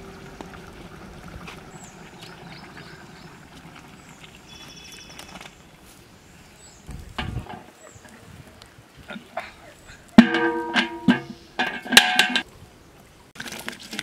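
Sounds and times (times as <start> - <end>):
birds chirping: 0.0 - 10.2
metal pot thumping: 10.2 - 12.4.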